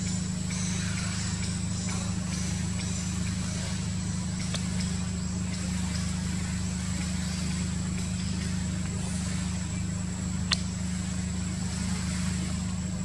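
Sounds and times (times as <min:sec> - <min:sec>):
low mechanical hum: 0:00.0 - 0:13.0
faint ticks: 0:00.5 - 0:06.2, 0:10.4 - 0:11.0.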